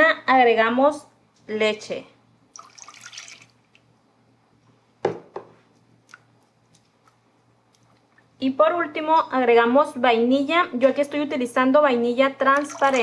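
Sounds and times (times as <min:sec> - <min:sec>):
milk pouring into a saucepan: 0:02.5 - 0:03.6, 0:12.6 - 0:13.0.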